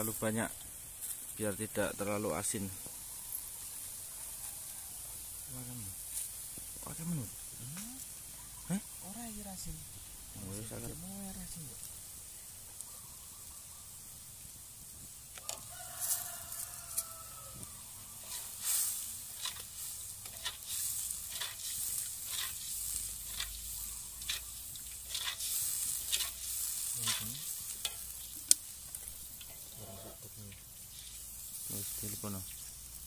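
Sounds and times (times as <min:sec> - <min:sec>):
light sizzle: 0:00.0 - 0:33.0
rooster crowing: 0:04.2 - 0:05.2, 0:15.4 - 0:18.6
metal spoon scraping wok: 0:18.2 - 0:32.0.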